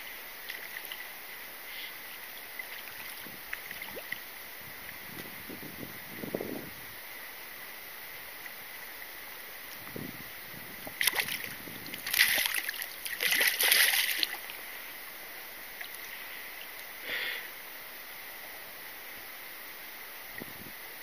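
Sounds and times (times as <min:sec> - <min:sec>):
river flowing: 0:00.0 - 0:21.0
fish thrashing and splashing: 0:11.0 - 0:14.5.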